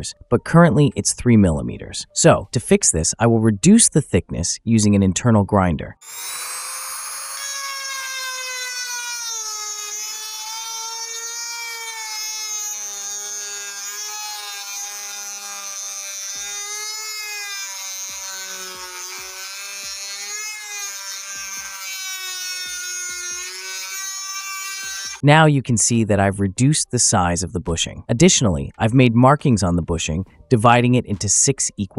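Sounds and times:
rotary tool grinding metal whine: 0:06.0 - 0:25.2.

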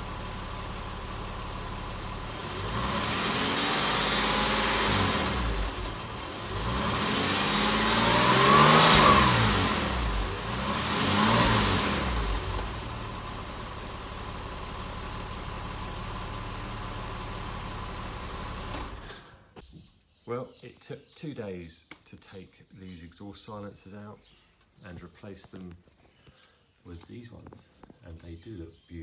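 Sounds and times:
car engine revving and idling: 0:00.0 - 0:19.3.

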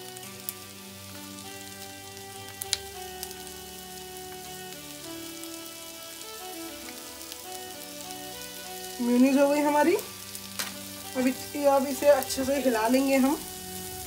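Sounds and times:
soft background music: 0:00.0 - 0:14.0
vegetables sizzling in a pan: 0:00.0 - 0:14.0
sharp pops from pan: 0:10.5 - 0:11.4.

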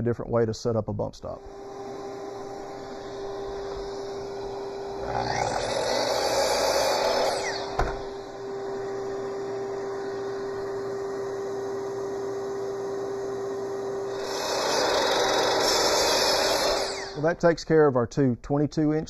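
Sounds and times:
miter saw cutting wood: 0:01.4 - 0:11.2, 0:14.0 - 0:17.5
steady motor hum: 0:01.4 - 0:17.4.

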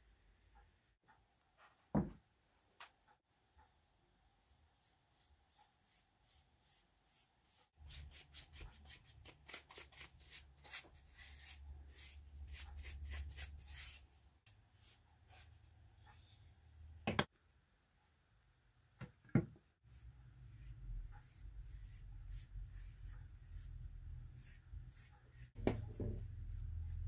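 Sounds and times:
paintbrush strokes on wood: 0:19.9 - 0:27.0.

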